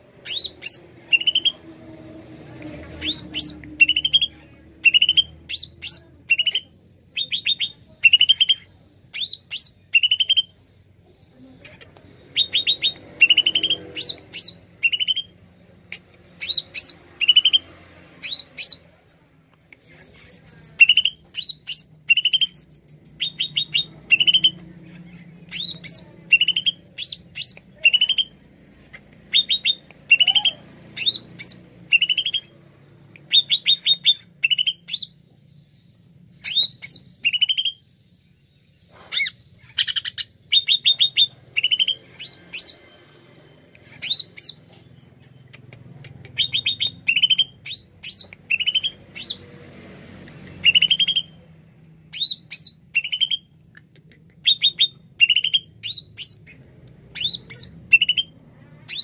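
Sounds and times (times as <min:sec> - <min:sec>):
bird singing chirps and whistles: 0:54.5 - 0:56.4, 0:57.2 - 0:58.3.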